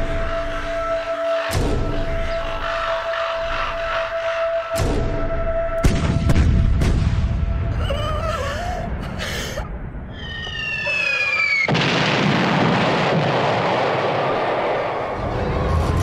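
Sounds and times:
loud explosion: 11.6s - 16.0s.

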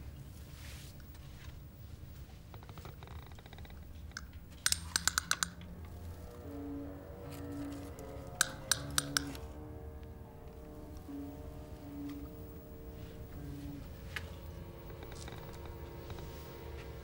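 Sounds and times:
soft background music: 0.0s - 17.0s.

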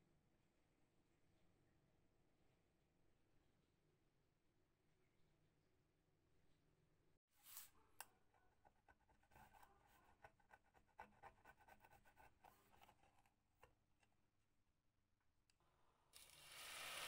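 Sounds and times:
metal tool scraping tape: 8.6s - 13.4s.

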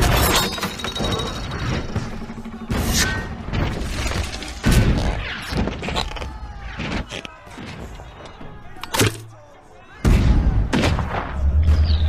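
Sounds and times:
mechanical clatter: 0.0s - 5.0s
cannon fire booms: 10.0s - 11.4s.

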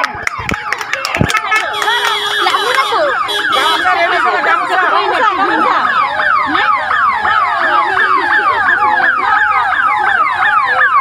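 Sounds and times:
electronic police sirens: 0.0s - 11.0s.

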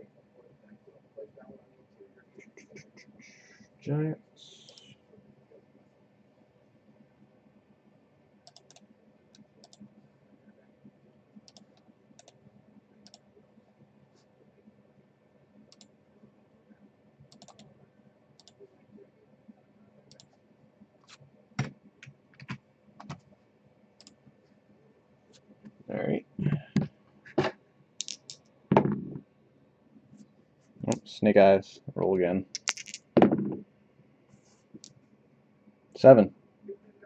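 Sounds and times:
keyboard and mouse clicks: 8.4s - 9.9s, 11.5s - 12.4s, 17.3s - 17.7s, 21.0s - 23.3s, 28.0s - 29.2s, 32.5s - 33.6s.

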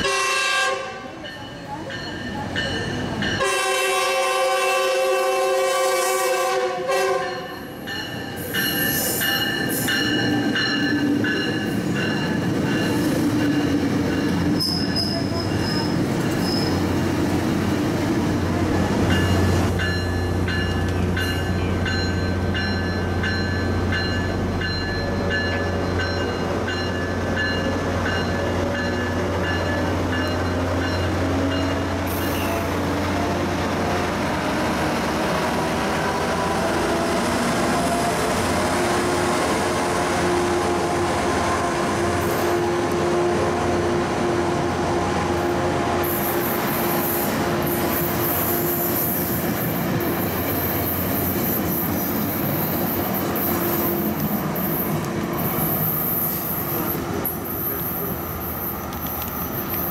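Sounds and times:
train coaches whining: 0.0s - 59.9s
train bell ringing: 1.0s - 3.8s, 7.2s - 16.9s, 19.0s - 32.8s
train wheel noise: 1.0s - 59.9s.

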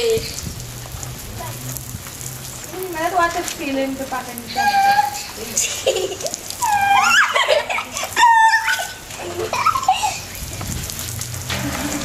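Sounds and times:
children squealing and shouting: 4.5s - 5.4s, 6.5s - 10.4s.

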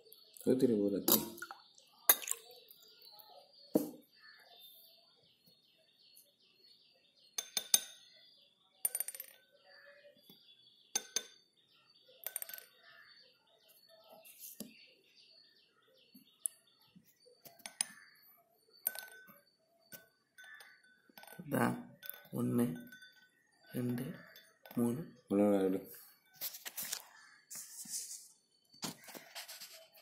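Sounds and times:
faint bird chirping: 0.0s - 30.0s
small hard objects clinking: 12.2s - 12.8s, 17.5s - 25.0s, 26.4s - 27.4s.

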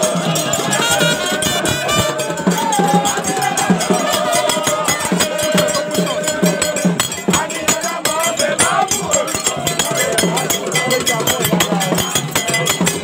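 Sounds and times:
crowd singing and shouting: 0.0s - 13.0s
percussion music: 0.0s - 13.0s
struck metal bell beat: 0.0s - 13.0s.

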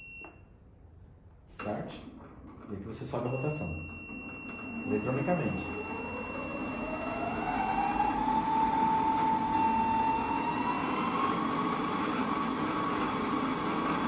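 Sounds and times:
motor whine climbing in pitch: 4.2s - 14.0s.

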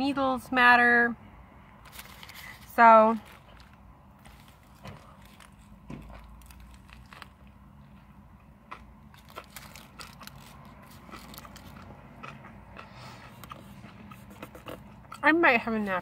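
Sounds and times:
close chewing: 1.9s - 8.0s, 8.7s - 15.3s
biting into crusty bread: 3.3s - 7.5s, 8.7s - 15.2s.

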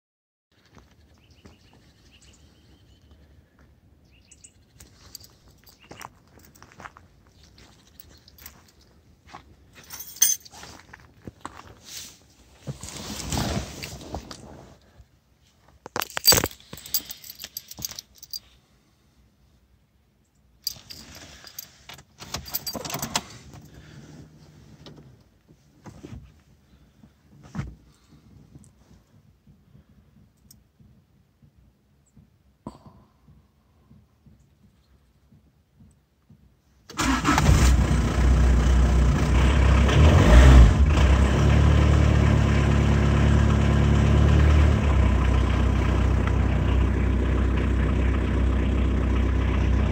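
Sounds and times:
birds chirping: 0.6s - 6.2s
car keys jangling: 4.8s - 6.6s, 7.6s - 8.9s, 9.8s - 10.6s, 15.9s - 18.5s, 20.7s - 23.7s
footsteps crunching on gravel: 4.8s - 13.3s.

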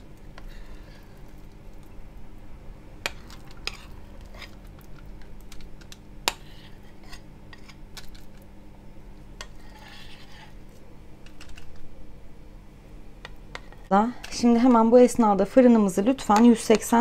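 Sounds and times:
utensil scraping batter: 0.0s - 1.9s, 3.0s - 8.5s, 9.4s - 11.8s, 13.2s - 15.1s.

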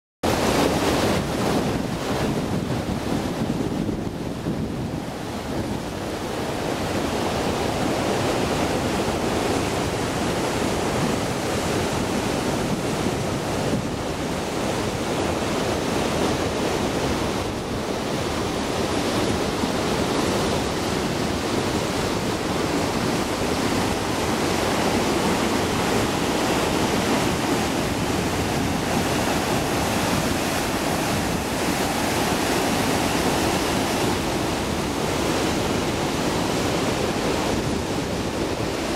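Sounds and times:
wind buffeting microphone: 0.3s - 38.9s
waterfall rushing: 6.1s - 38.9s.

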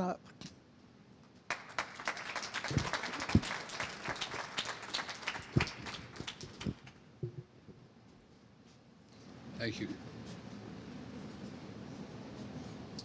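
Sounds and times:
audience applauding: 1.5s - 7.0s.

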